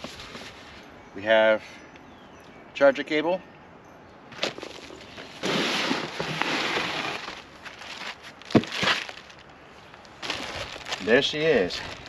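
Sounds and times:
styrofoam blocks scraping: 4.4 - 9.4
plastic wrapping crackling: 4.4 - 12.0.

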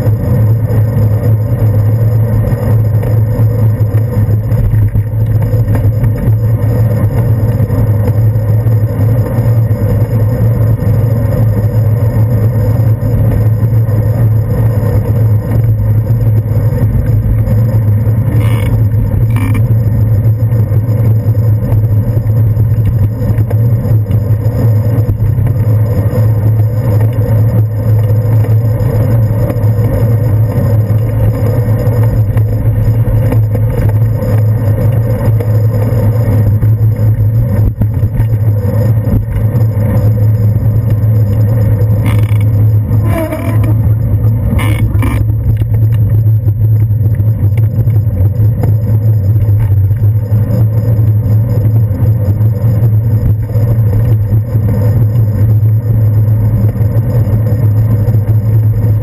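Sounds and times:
road rumble: 0.0 - 59.0
wind noise: 0.0 - 59.0
bicycle knocks and rattles: 2.6 - 9.4, 15.1 - 19.8, 21.6 - 24.4, 26.5 - 39.9, 40.8 - 48.8.

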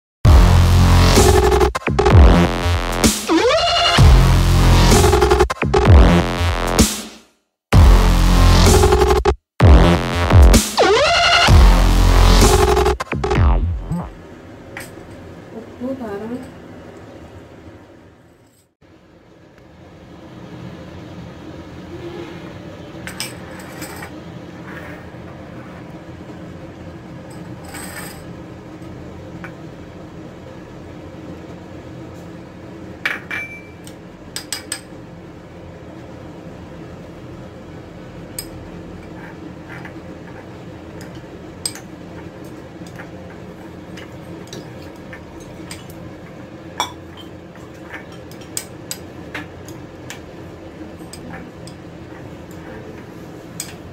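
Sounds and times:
steady low hum: 0.3 - 3.4, 7.7 - 18.1.

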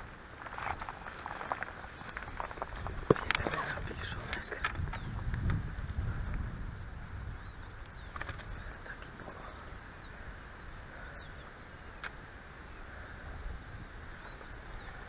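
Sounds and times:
wind rumbling on microphone: 0.0 - 15.0
sharp clicks: 12.0 - 12.2.

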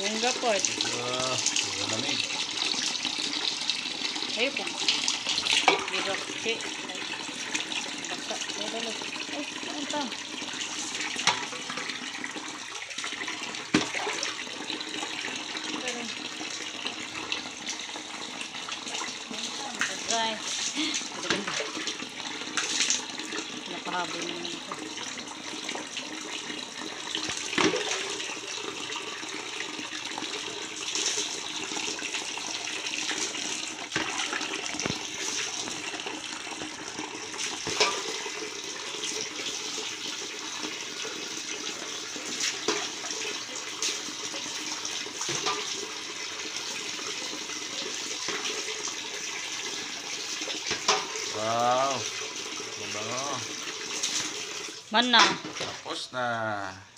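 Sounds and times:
water running and splashing: 0.0 - 56.7
sharp splashes or knocks: 13.7 - 14.3, 27.3 - 28.1.

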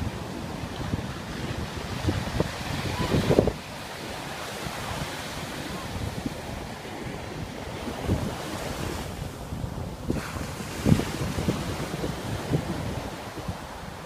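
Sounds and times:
surf breaking on beach: 0.0 - 14.0
wind buffeting microphone: 0.0 - 14.0.

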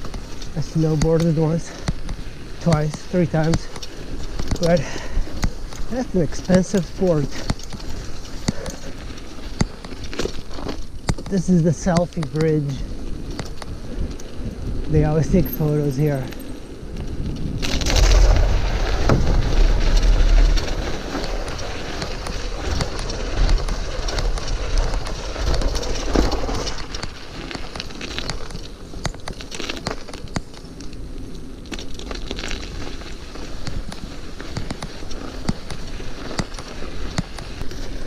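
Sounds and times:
bike rattling over bumps: 0.0 - 38.0
tyres crunching on snow: 0.0 - 38.0
heavy low rumble: 17.1 - 26.1.

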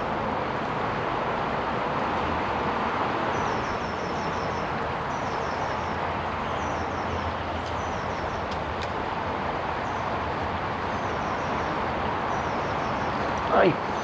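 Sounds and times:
flowing river water: 0.0 - 14.0
small bird singing: 3.2 - 8.6, 10.7 - 14.0.

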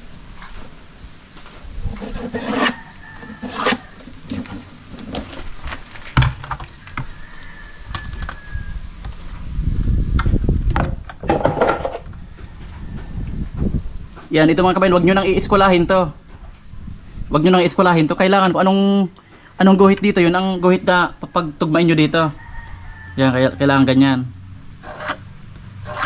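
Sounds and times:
wood rubbing and scraping: 0.0 - 7.2, 24.8 - 25.2, 25.8 - 26.0
wood knocking on wood: 10.7 - 12.1.

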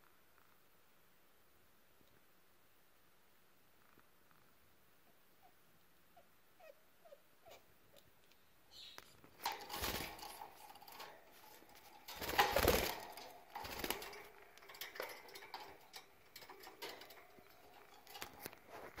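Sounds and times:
rustling and scuffling in cage: 8.8 - 19.0.

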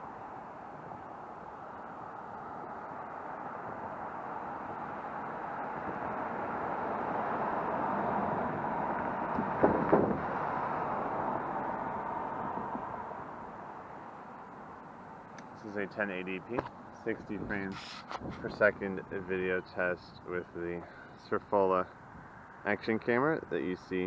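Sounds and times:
cars driving past: 0.0 - 17.6.

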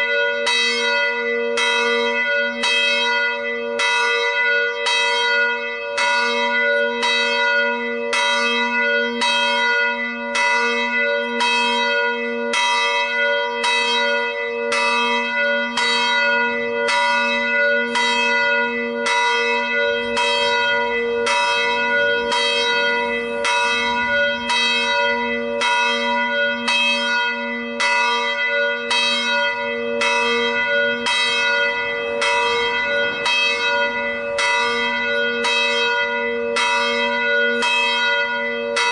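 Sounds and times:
church bell ringing: 0.0 - 38.9.

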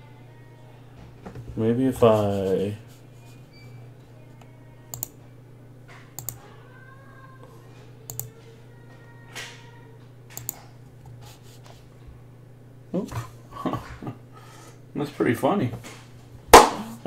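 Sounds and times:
steady low hum: 0.0 - 17.0
computer mouse clicks: 4.9 - 5.2, 6.2 - 6.4, 8.1 - 8.3, 10.3 - 10.7.

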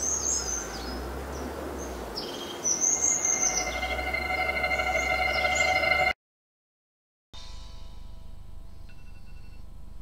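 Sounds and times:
birds chirping: 0.0 - 6.1
held multi-pitch tone: 2.8 - 6.2.

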